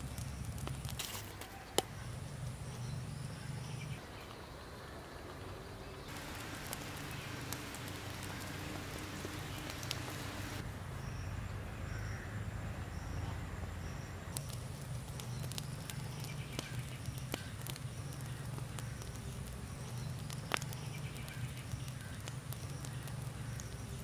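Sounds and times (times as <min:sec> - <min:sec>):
charcoal embers crackling: 0:00.0 - 0:04.5, 0:06.0 - 0:10.8, 0:14.2 - 0:24.0
steady low rumble: 0:06.1 - 0:10.6.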